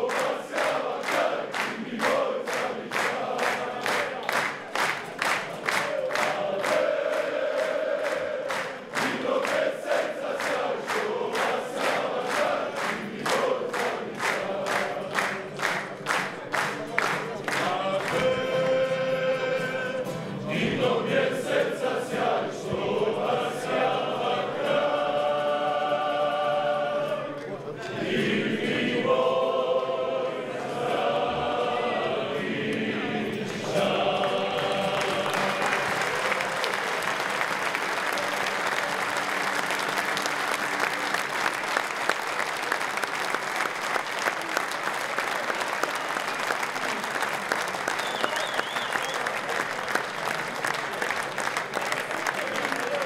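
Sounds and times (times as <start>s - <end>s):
men singing together: 0.0s - 4.5s, 5.5s - 15.6s, 17.5s - 36.6s
audience applause: 0.0s - 19.9s, 33.5s - 53.0s.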